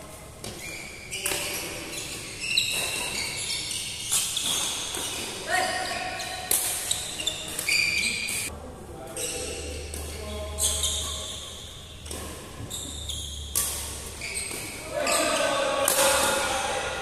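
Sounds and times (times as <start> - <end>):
shoes squeaking on court floor: 0.1 - 8.5, 9.1 - 16.4
rackets striking shuttlecock: 6.4 - 8.5, 11.9 - 16.9.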